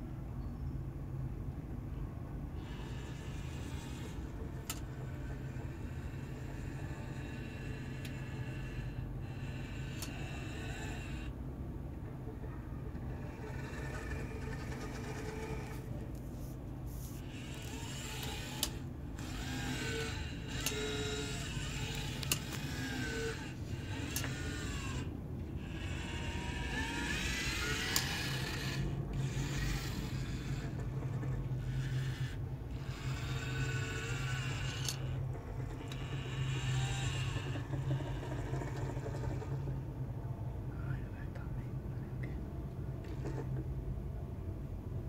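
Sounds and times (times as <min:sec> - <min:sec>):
steady low hum: 0:00.0 - 0:45.0
small electric motors whining: 0:02.5 - 0:11.4, 0:12.8 - 0:39.7.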